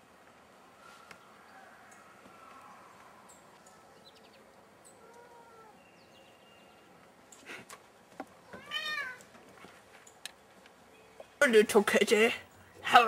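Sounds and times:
faint outdoor ambience: 0:00.0 - 0:13.0
rustle: 0:00.0 - 0:13.0.

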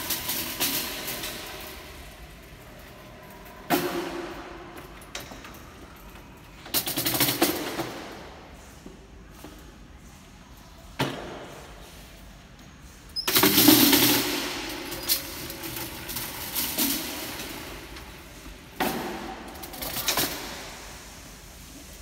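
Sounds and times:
boxes rattling on roller tracks: 0:00.0 - 0:08.2, 0:13.2 - 0:20.8.

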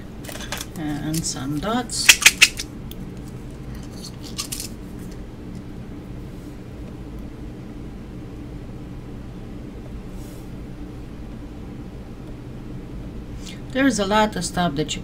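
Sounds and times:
steady low hum: 0:00.0 - 0:15.0
hand tools clicking on surface: 0:02.1 - 0:02.6.

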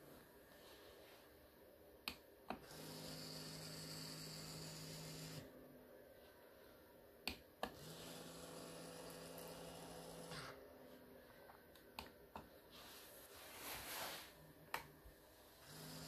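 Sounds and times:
small electric motor whining: 0:02.6 - 0:05.5, 0:07.7 - 0:10.6, 0:15.6 - 0:16.0.

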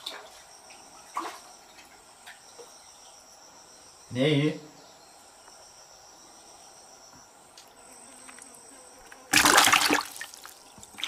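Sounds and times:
crickets chirping: 0:00.0 - 0:11.0
fish splashing into bucket: 0:09.3 - 0:11.0.

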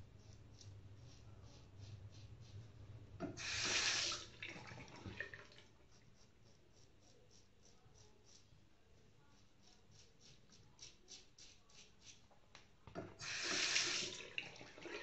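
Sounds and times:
tap water running: 0:03.2 - 0:05.7, 0:12.9 - 0:15.0.

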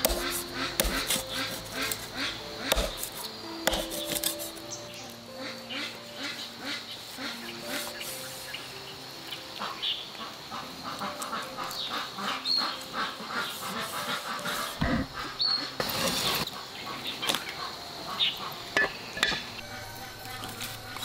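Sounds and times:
ducks quacking: 0:00.0 - 0:03.0, 0:05.3 - 0:08.4, 0:09.4 - 0:21.0
cleaver slicing on wooden block: 0:00.0 - 0:04.4.

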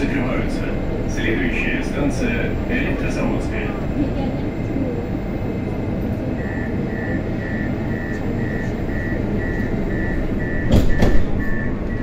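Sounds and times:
train car hum: 0:00.0 - 0:12.0
doors shutting knocks: 0:10.4 - 0:12.0.

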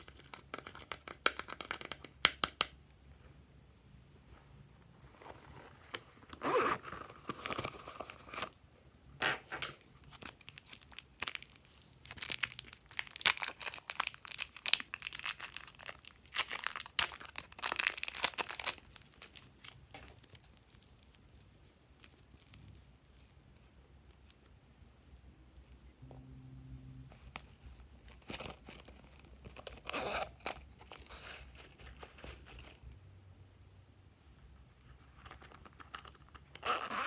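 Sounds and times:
plastic wrapping crinkling and tearing: 0:10.0 - 0:24.5, 0:27.4 - 0:32.8.

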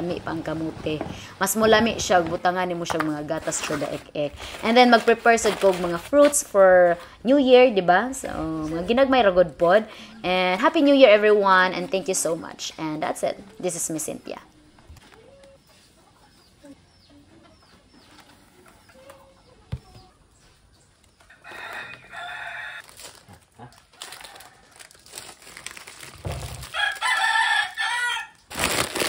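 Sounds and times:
rooster crowing: 0:21.4 - 0:22.9, 0:26.7 - 0:28.4
plastic packets rustling: 0:22.7 - 0:27.4, 0:28.5 - 0:29.0.

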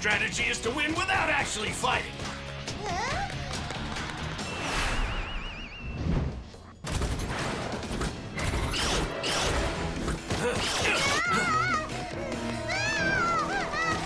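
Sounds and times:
background music: 0:00.0 - 0:05.7, 0:06.5 - 0:14.0
rising whooshes: 0:04.5 - 0:06.5.

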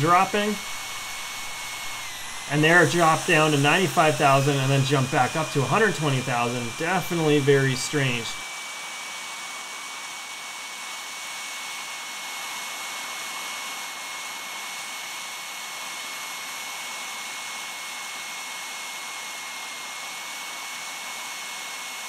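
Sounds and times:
model turbine engine whining: 0:00.0 - 0:12.4.

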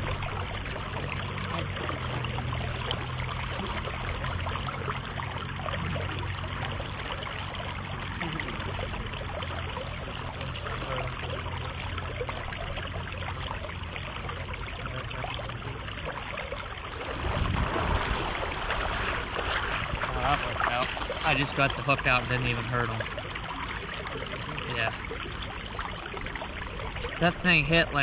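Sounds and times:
river water rushing: 0:16.9 - 0:28.0.

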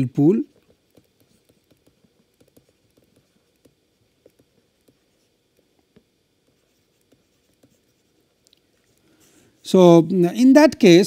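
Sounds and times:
stylus tapping on tablet: 0:00.6 - 0:08.0.

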